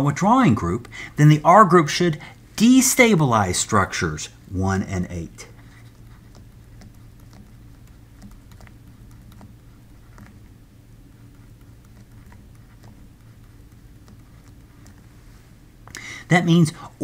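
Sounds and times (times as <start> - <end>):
steady low hum: 0.0 - 17.0
stylus tapping on pen tablet: 11.3 - 15.0.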